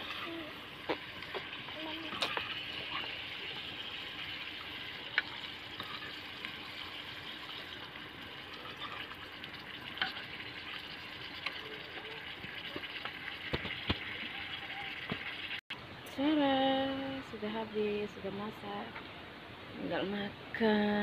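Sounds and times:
meat sizzling in a pan: 0.0s - 15.6s
metal ladle scraping a pan: 5.2s - 6.3s.

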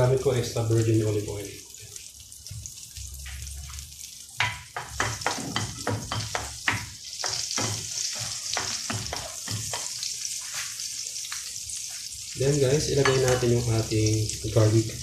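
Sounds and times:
butter and oil sizzling in pan: 0.0s - 15.0s
spatula scraping pan: 4.9s - 10.8s.

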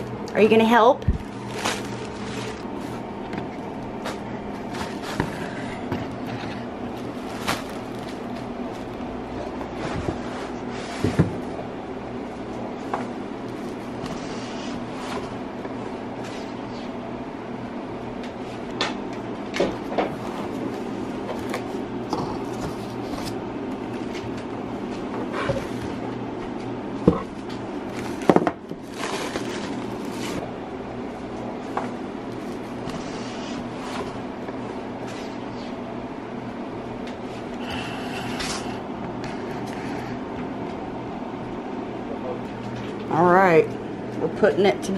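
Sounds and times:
low background hum: 0.0s - 44.9s
plastic air pillows crinkling: 0.3s - 11.5s, 27.3s - 30.5s
packaging crinkling and tapping: 6.9s - 9.0s.

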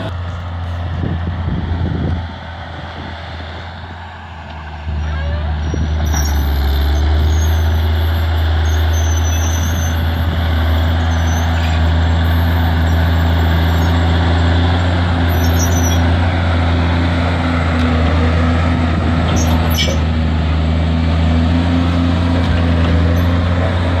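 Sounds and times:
tractor diesel engine under load: 0.0s - 24.0s.

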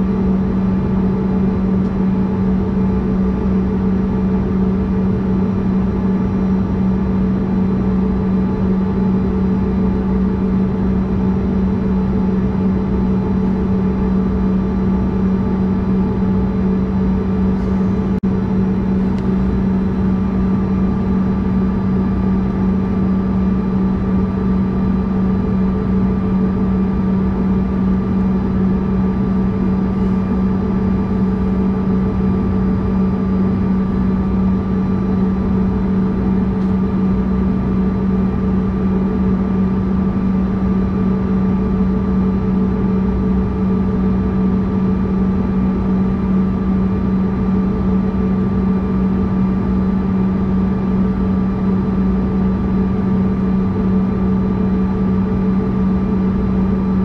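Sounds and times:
jet engines idling: 14.8s - 39.3s.

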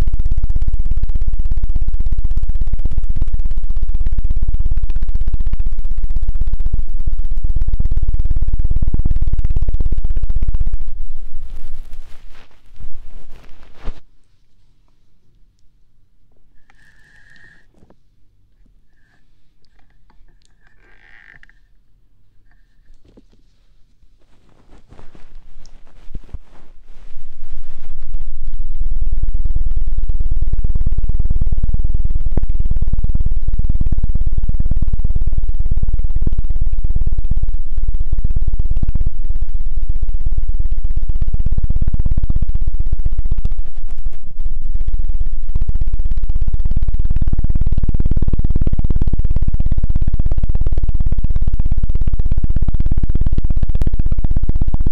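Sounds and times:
rubbing and brushing on microphone: 10.9s - 14.8s, 22.5s - 28.2s, 43.6s - 44.4s
hands patting microphone ears: 11.0s - 14.1s
hands patting on microphone ears: 11.0s - 14.1s, 24.2s - 28.0s.

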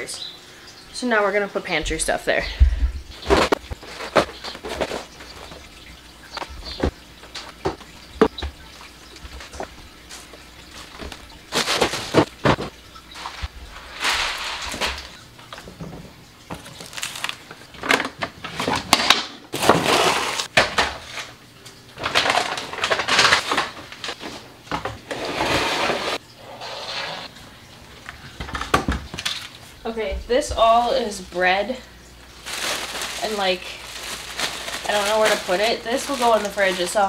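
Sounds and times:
cardboard packaging crackling: 9.4s - 15.2s, 16.6s - 21.3s, 22.0s - 24.4s, 32.2s - 37.0s.

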